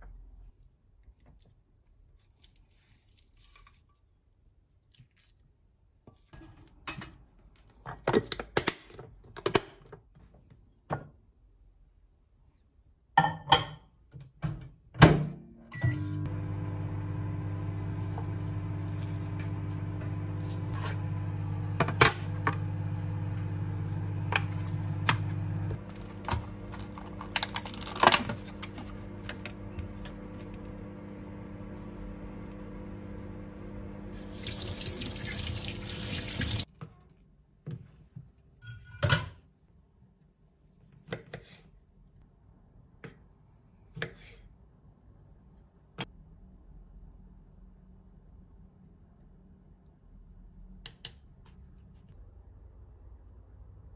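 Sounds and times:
microwave oven humming: 15.7s - 36.7s
tap running: 16.3s - 36.7s.

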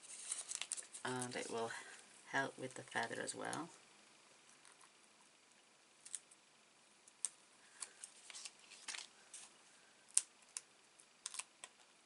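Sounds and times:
paper clicks and crinkles: 0.0s - 1.7s, 7.7s - 11.9s.

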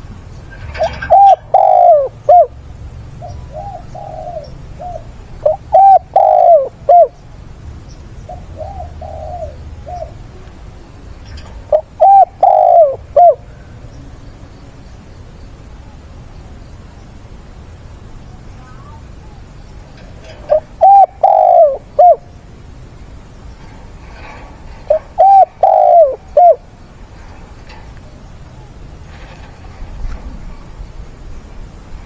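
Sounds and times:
dove cooing: 0.6s - 2.6s, 3.2s - 7.2s, 8.3s - 10.4s, 11.2s - 13.5s, 20.0s - 22.4s, 23.6s - 27.8s.

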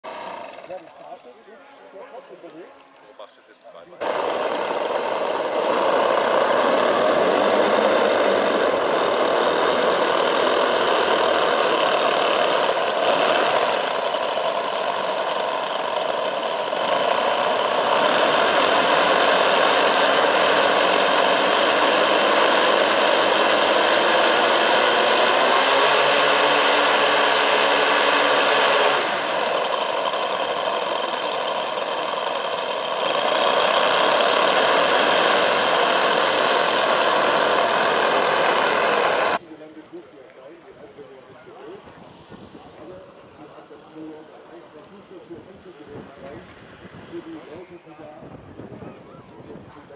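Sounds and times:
model engines buzzing: 0.0s - 1.4s, 4.0s - 39.4s.

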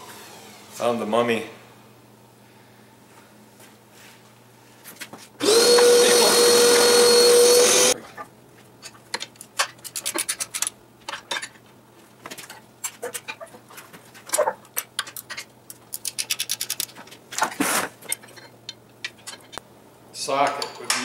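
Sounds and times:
socket ratchet clicking: 15.9s - 16.9s.

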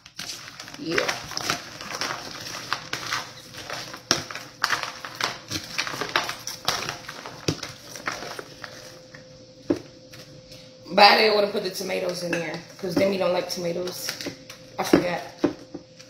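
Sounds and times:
lettuce leaves rustling and crunching: 0.0s - 9.0s.

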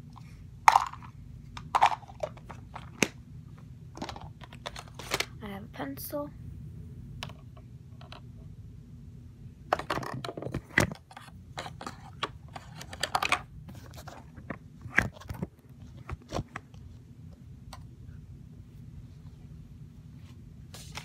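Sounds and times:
objects rummaged in plastic basket: 0.7s - 3.1s.

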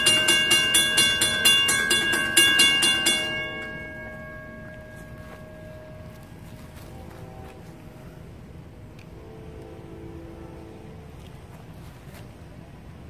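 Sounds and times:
railroad crossing bell ringing: 0.0s - 8.6s.

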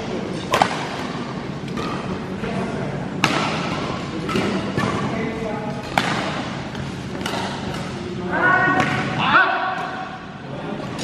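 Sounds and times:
racket striking shuttlecock: 0.5s - 2.2s, 3.2s - 5.0s, 5.8s - 8.0s.

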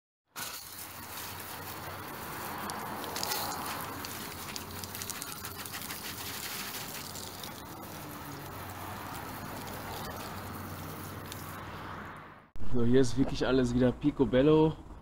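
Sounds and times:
hose spraying water: 0.4s - 11.6s.

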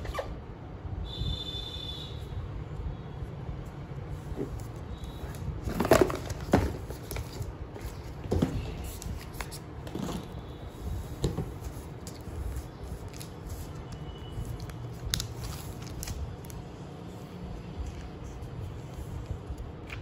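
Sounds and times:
packaging rustling: 5.2s - 10.4s, 11.2s - 16.6s.

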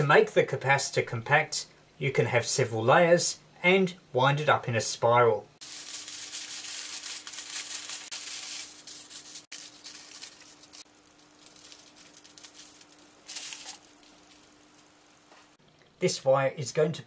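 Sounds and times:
faint steady hum: 0.0s - 6.8s, 9.6s - 17.0s
foil tearing: 5.6s - 14.5s
aluminium foil crinkling: 5.6s - 15.6s.

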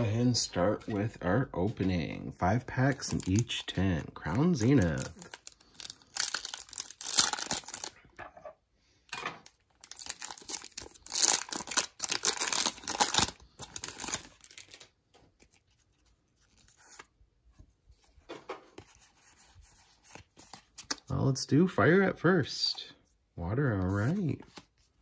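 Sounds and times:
faint handling of cards: 0.6s - 8.0s, 9.4s - 21.2s, 22.7s - 25.0s
foil pack tearing and crinkling: 4.6s - 7.9s, 9.8s - 14.9s.

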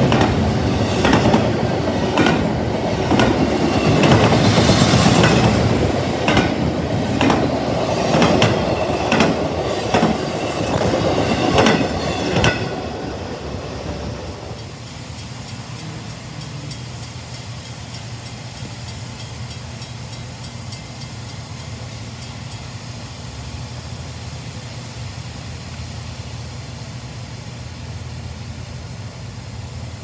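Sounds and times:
locomotive low rumble: 12.4s - 17.4s
crossing bell dinging: 14.5s - 22.8s.

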